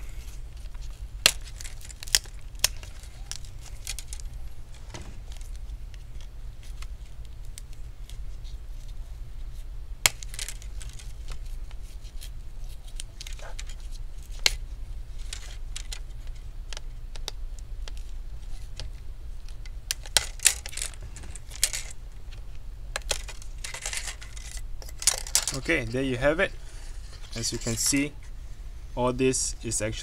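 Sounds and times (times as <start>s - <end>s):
tape crackling: 0.0s - 28.4s
steady low hum: 0.0s - 30.0s.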